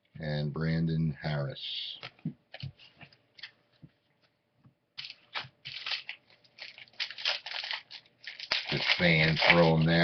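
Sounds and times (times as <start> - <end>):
trading cards flicking and rustling: 5.0 - 10.0.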